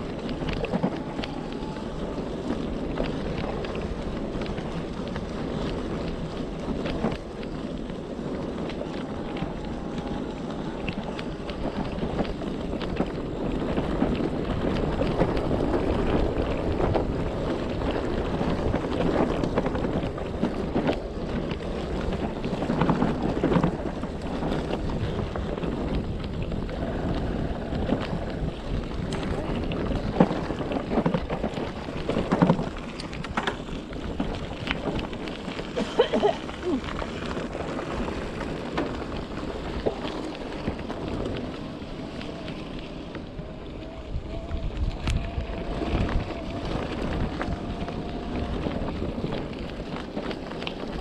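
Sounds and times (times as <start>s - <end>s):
e-bike rumble on rough trail: 0.0s - 51.0s
wind buffeting microphone: 0.0s - 51.0s
bike knocks and rattles: 27.8s - 41.6s.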